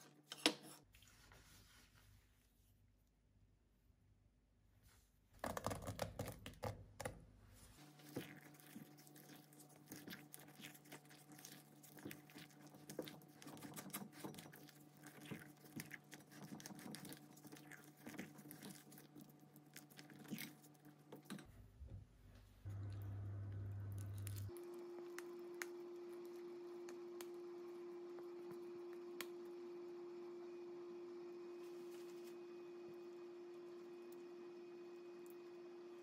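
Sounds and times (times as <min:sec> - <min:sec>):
faint steady hum: 0:07.0 - 0:36.0.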